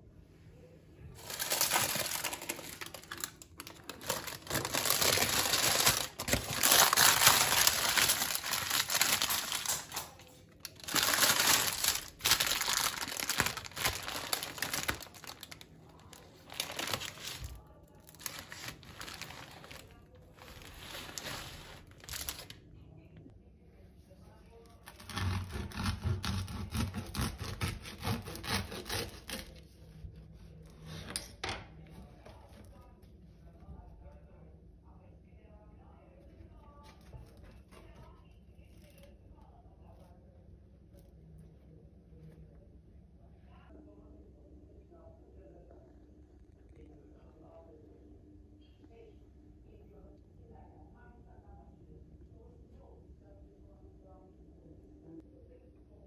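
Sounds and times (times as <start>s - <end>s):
parchment paper crinkling: 1.2s - 22.6s
knife rasping through bread crust: 24.9s - 29.7s.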